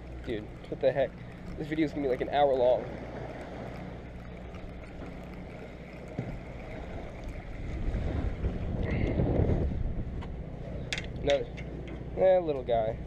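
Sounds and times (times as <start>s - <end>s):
boat machinery humming: 0.0s - 13.0s
sea water washing: 0.0s - 13.0s
wind noise: 7.2s - 11.2s.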